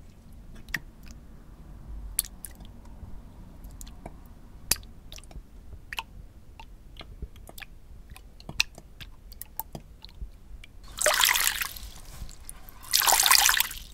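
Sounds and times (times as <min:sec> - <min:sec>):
light clicks and drips: 0:00.0 - 0:01.3, 0:02.0 - 0:13.9
liquid splashing: 0:10.8 - 0:13.9.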